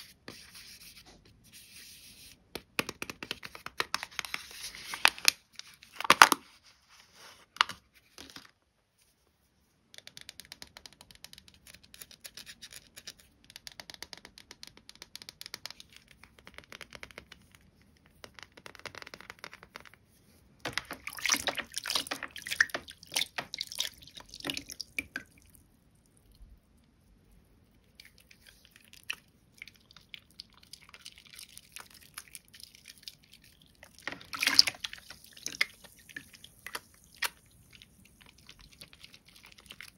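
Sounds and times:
wet soap squelching: 0:20.8 - 0:26.7, 0:27.4 - 0:39.9.

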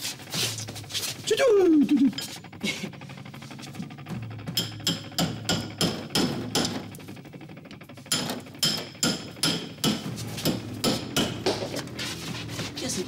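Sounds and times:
hammer striking steel chisel: 0:04.6 - 0:06.9, 0:08.1 - 0:11.9.

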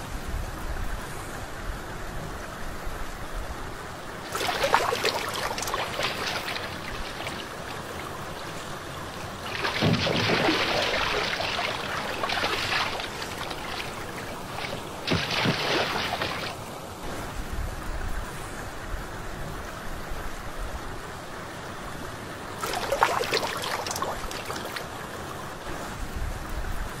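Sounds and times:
water splashing surges: 0:03.1 - 0:18.6, 0:21.2 - 0:27.0
water rushing hiss: 0:04.2 - 0:17.4.

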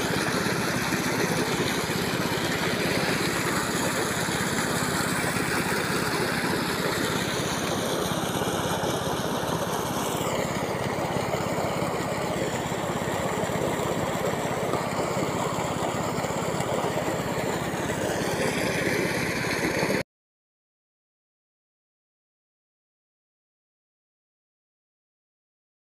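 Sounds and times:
diesel engine running: 0:00.0 - 0:20.0.

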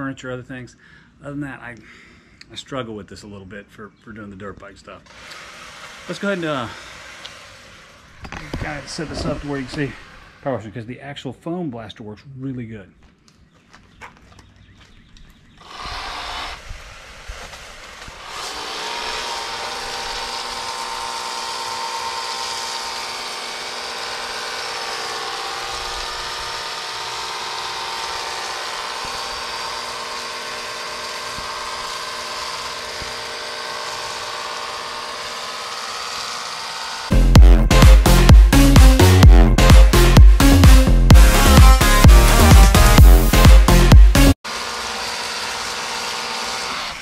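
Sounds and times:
pump motor humming: 0:18.2 - 0:37.2
electronic dance music: 0:37.1 - 0:44.4.

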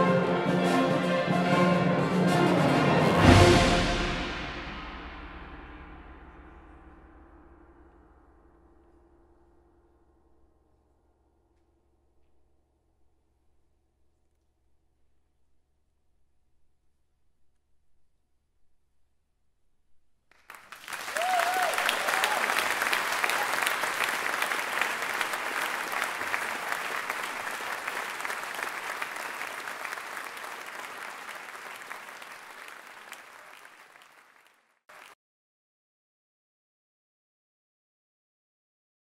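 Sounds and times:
audience applauding: 0:20.4 - 0:35.2.

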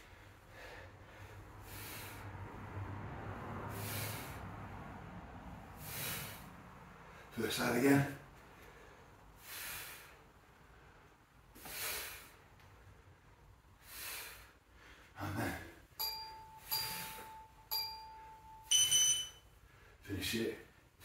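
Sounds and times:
heavy exhaled breaths: 0:00.0 - 0:07.4, 0:08.2 - 0:15.6
electronic timer beeping: 0:16.0 - 0:19.4.

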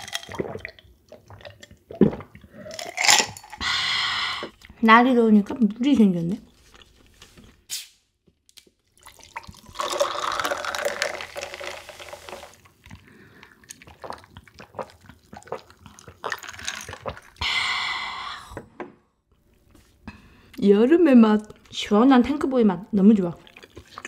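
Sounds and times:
wet slurping: 0:09.0 - 0:18.2, 0:23.4 - 0:24.0
wet mouth clicks and squishes: 0:12.6 - 0:17.4, 0:23.4 - 0:24.0.

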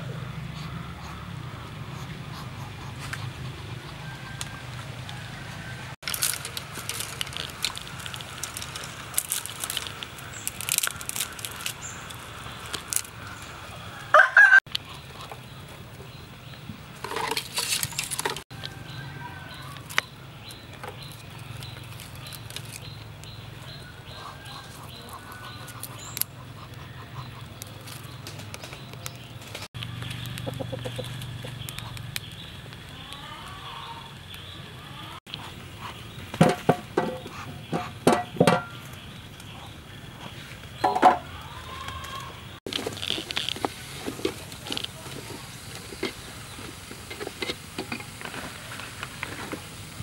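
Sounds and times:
rooster crowing: 0:04.0 - 0:06.0, 0:13.3 - 0:14.7, 0:18.5 - 0:19.9
dry twigs snapping and rustling: 0:06.0 - 0:13.5, 0:17.0 - 0:18.8, 0:19.6 - 0:23.7, 0:24.5 - 0:26.4, 0:27.5 - 0:33.6, 0:41.4 - 0:47.2
small wood fire crackling: 0:06.0 - 0:13.7, 0:14.7 - 0:26.3, 0:27.4 - 0:34.6, 0:40.6 - 0:50.0.

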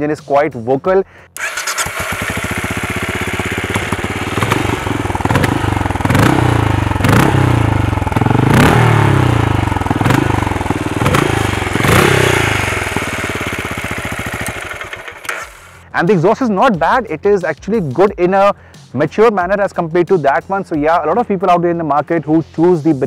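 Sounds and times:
motorcycle engine revving: 0:01.4 - 0:15.8.

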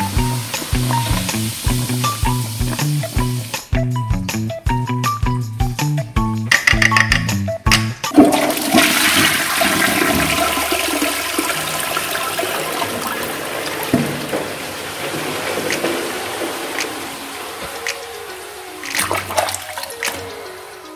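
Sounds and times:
toilet flushing: 0:00.0 - 0:03.8, 0:08.1 - 0:20.9
bouncy background music: 0:00.0 - 0:20.9.

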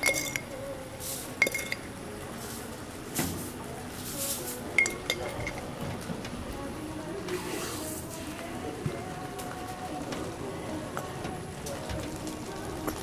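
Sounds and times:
metal utensils clinking: 0:00.0 - 0:06.4.

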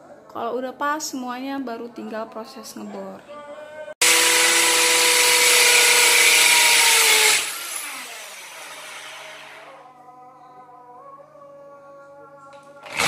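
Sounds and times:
electric drill whining: 0:04.0 - 0:09.8.

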